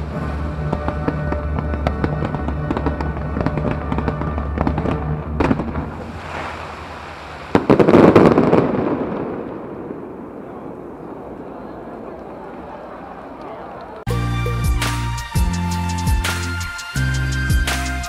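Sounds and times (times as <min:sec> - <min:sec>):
show music: 0:00.0 - 0:06.5, 0:14.1 - 0:18.0
fireworks bursting and crackling: 0:00.0 - 0:13.2.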